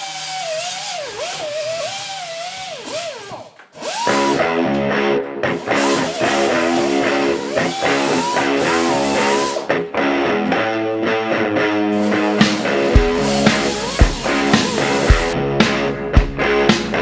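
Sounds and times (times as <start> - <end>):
rock music with lead guitar: 4.2 - 17.0.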